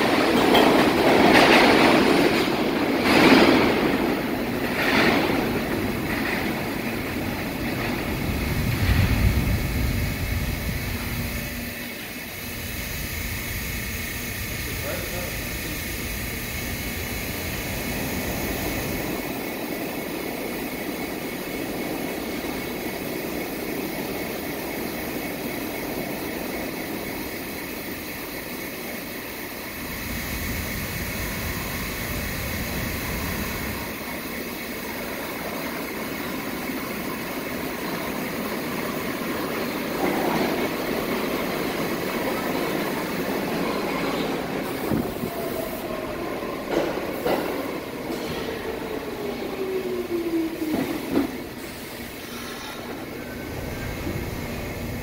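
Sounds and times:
train wheel clatter: 0.0 - 12.2, 14.1 - 55.0
subway train rumbling: 0.0 - 55.0
train wheel squeal: 48.1 - 53.9.

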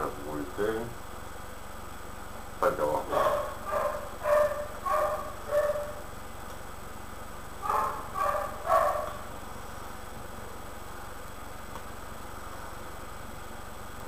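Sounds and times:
dog barking: 3.1 - 6.0, 7.6 - 9.2.

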